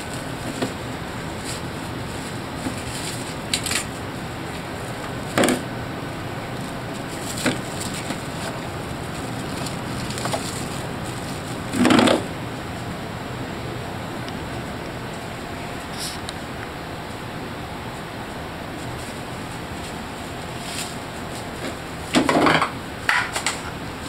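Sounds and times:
cat rustling frozen packages: 0.0s - 13.0s, 17.9s - 24.0s
steady hiss: 0.0s - 24.0s.

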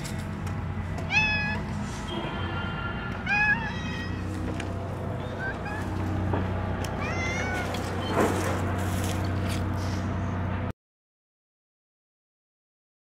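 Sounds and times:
low hum: 0.0s - 10.7s
cat meowing: 1.1s - 1.7s, 2.6s - 4.4s, 5.2s - 6.0s, 6.9s - 8.2s.

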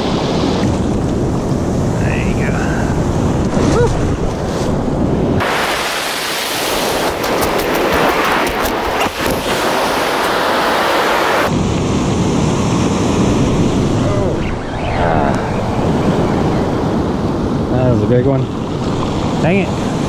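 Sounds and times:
wind rumbling on microphone: 0.0s - 20.0s
ocean surf washing up beach: 5.4s - 20.0s.

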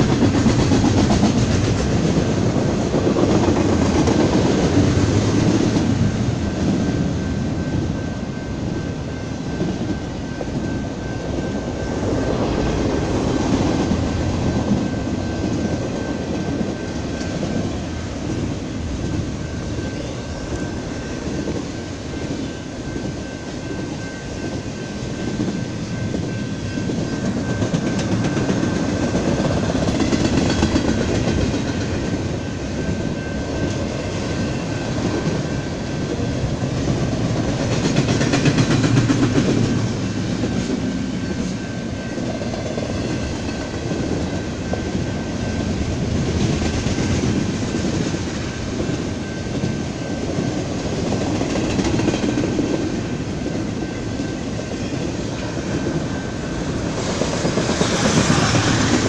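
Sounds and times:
freight train wheels rumbling: 0.0s - 59.0s.

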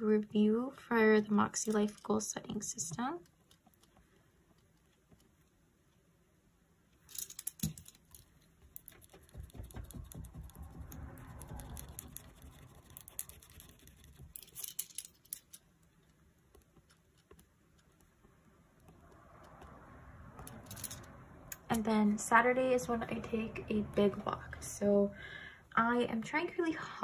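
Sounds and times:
soft paper rustling and scratching: 8.0s - 19.8s.

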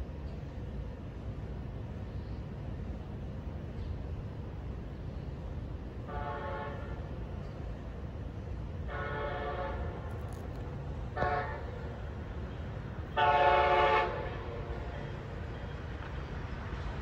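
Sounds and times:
train approaching: 0.0s - 17.0s
train horn blasts: 6.1s - 7.1s, 8.8s - 10.3s, 11.1s - 12.0s, 13.1s - 15.3s.

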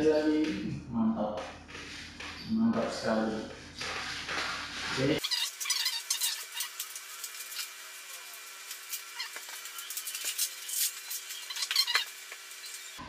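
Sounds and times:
plastic sack and paper crinkling: 4.9s - 12.0s.

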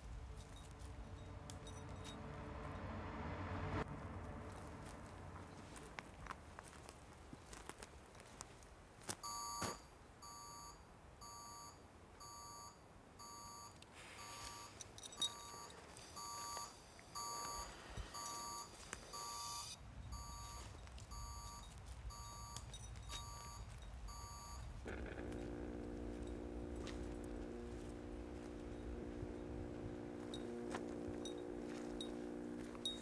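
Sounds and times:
electronic alarm beeping: 9.2s - 33.0s
low rumble: 24.8s - 33.0s.

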